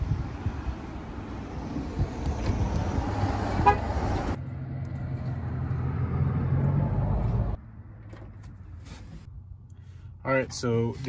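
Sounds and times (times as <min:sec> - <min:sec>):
truck horn chirp: 0:03.6 - 0:03.9.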